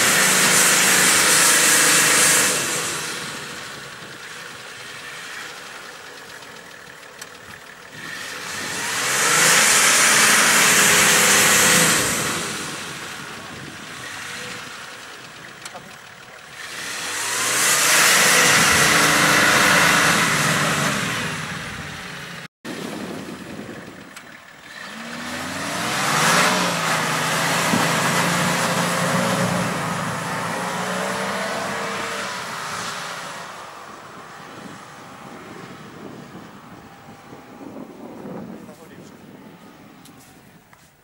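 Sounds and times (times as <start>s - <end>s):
off-road vehicle engine revving: 0.0s - 40.4s.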